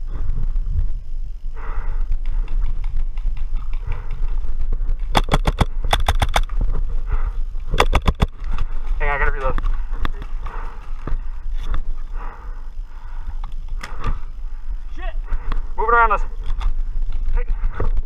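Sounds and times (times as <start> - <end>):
wind rumble on microphone: 0.0 - 9.0
paintball marker firing bursts: 5.1 - 6.5, 7.8 - 8.4.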